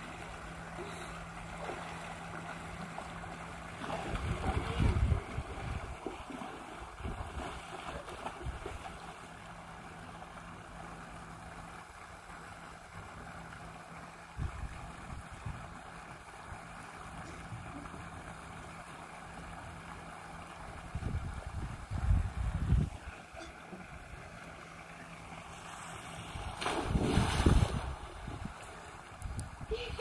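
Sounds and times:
sea water splashing and lapping: 0.0 - 30.0
steady low hum: 0.0 - 30.0.

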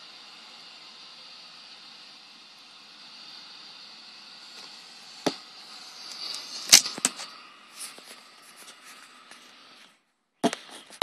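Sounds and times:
leaf vacuum whining: 0.0 - 11.0.

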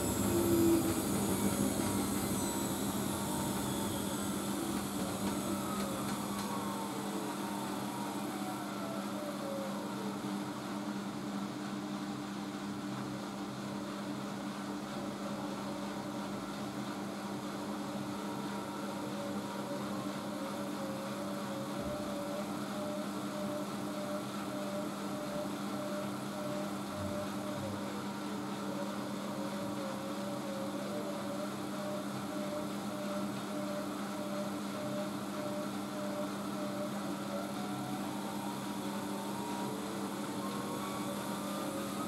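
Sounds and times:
high whine: 0.0 - 10.4
washing machine motor hum: 0.0 - 42.0.

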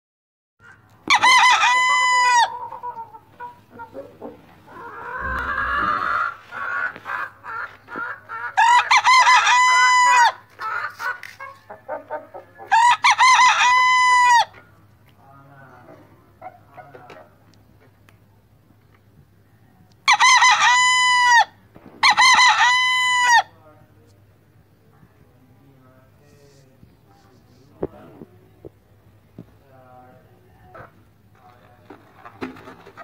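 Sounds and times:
rooster clucking: 0.6 - 14.6, 20.0 - 23.5
rooster crowing: 1.1 - 2.6, 4.7 - 6.4, 8.6 - 10.4, 12.7 - 14.5, 20.1 - 23.5
brief rushing noise: 5.2 - 6.4.

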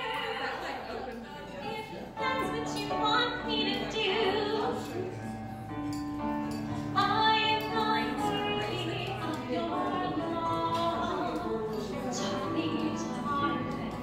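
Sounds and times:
woman singing into microphone: 2.2 - 5.1, 6.8 - 14.0.

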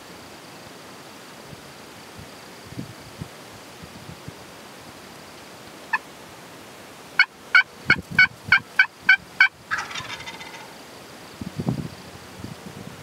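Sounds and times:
turkey yelping: 8.8 - 10.7.

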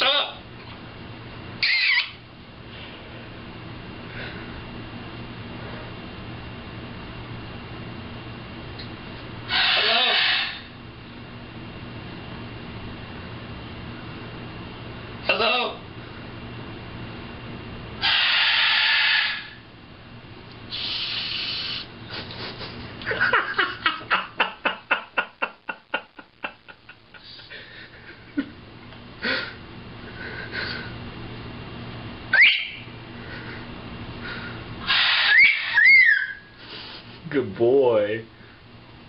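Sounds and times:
parrot quick pulsing calls: 1.6 - 2.2, 9.5 - 10.6, 18.0 - 19.6, 20.7 - 21.9, 32.3 - 32.9, 34.8 - 36.5
parrot screeching: 1.6 - 2.2, 9.5 - 10.7, 18.0 - 19.6, 32.3 - 32.9, 34.8 - 36.6
rising whistle: 32.3 - 32.8.

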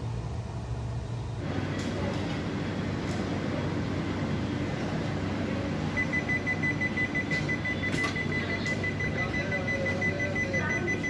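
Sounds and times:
high steady door warning beep: 5.9 - 11.0.

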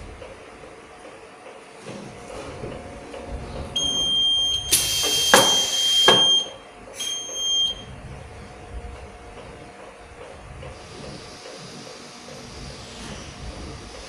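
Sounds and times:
metal detector alarm buzzer: 3.8 - 7.8
sharp knocks: 5.0 - 6.4.

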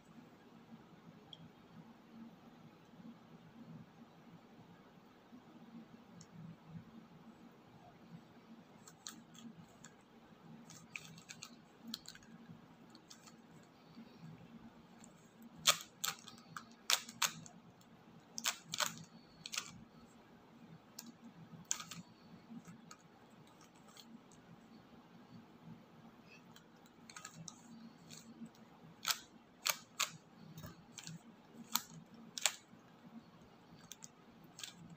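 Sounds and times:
puzzle cube clicking as twisted: 8.9 - 10.0, 10.6 - 13.6, 15.0 - 17.6, 18.3 - 19.9, 20.9 - 24.2, 26.4 - 34.9.

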